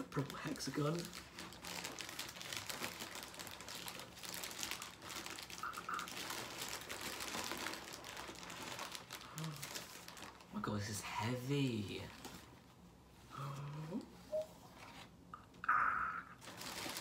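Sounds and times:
bubble wrap crinkling: 0:00.0 - 0:12.8, 0:16.4 - 0:17.0.

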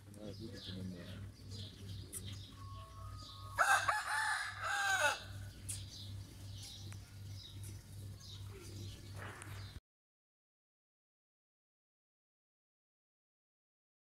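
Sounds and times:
small birds chirping: 0:00.0 - 0:09.8
rooster crowing: 0:02.6 - 0:05.4.

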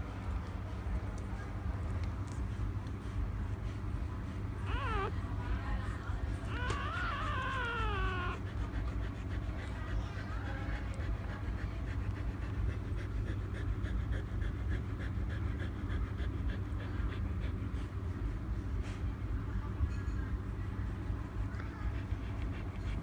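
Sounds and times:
puppies suckling: 0:04.4 - 0:18.5
puppy whining squeal: 0:04.6 - 0:05.2, 0:06.4 - 0:08.5.

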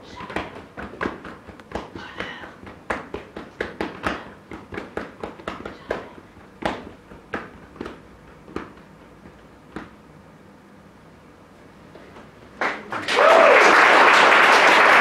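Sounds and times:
handclaps: 0:12.6 - 0:15.0.

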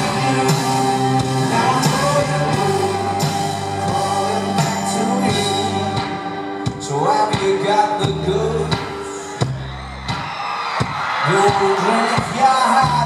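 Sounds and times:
voices singing: 0:00.0 - 0:09.4
live rock band playing: 0:00.0 - 0:13.0
slow drum beat: 0:00.0 - 0:13.0.

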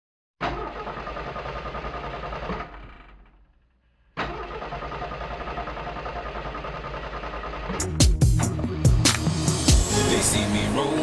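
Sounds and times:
engine running: 0:04.2 - 0:11.0.

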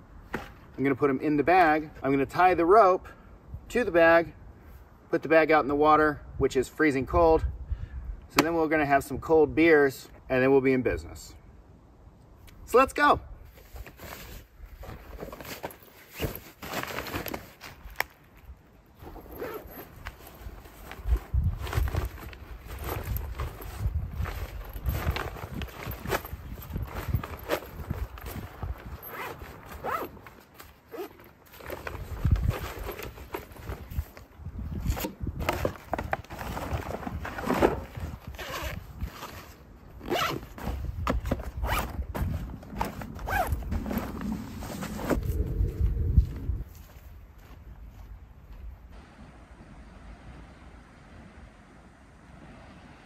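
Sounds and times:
nylon sack rustling: 0:13.5 - 0:18.0, 0:19.0 - 0:47.0
zipper being pulled: 0:19.0 - 0:33.6, 0:37.3 - 0:40.8, 0:41.6 - 0:45.5.

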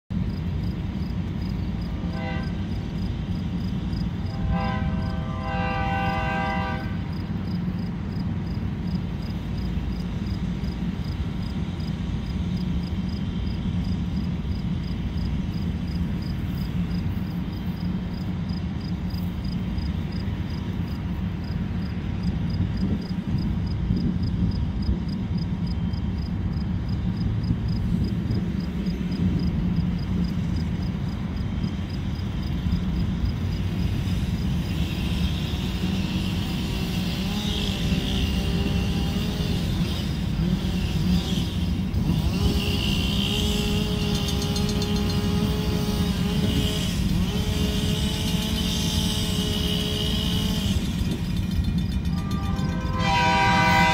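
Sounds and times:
distant locomotive air horn: 0:01.9 - 0:03.0, 0:04.2 - 0:07.1, 0:34.7 - 0:50.9, 0:52.2 - 0:53.9.

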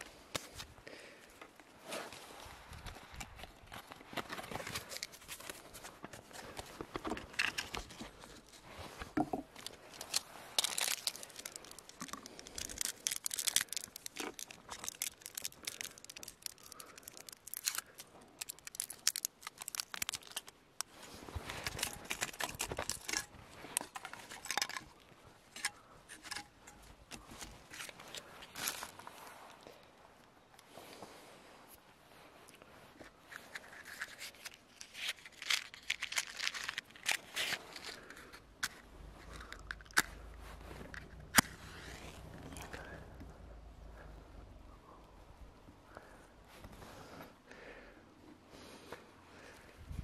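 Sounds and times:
rustling: 0:01.4 - 0:29.8, 0:32.2 - 0:44.3
foil crinkling and tearing: 0:03.9 - 0:08.7, 0:09.6 - 0:25.0, 0:33.7 - 0:40.2.

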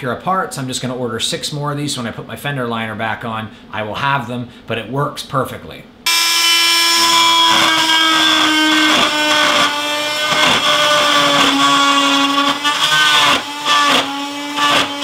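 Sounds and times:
cordless drill whining: 0:06.1 - 0:15.0.

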